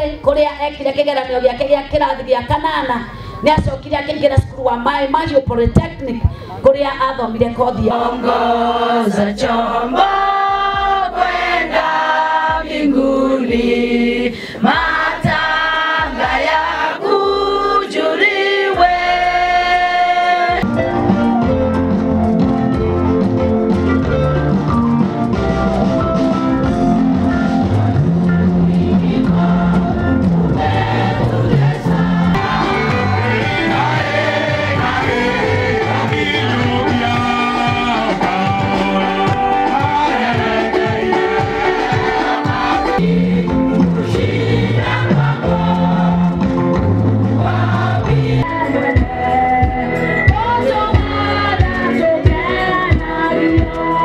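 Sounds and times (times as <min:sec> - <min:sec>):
instrumental backing with bass line: 0:00.0 - 0:54.0
women's choir singing gospel: 0:07.4 - 0:20.7, 0:28.4 - 0:54.0.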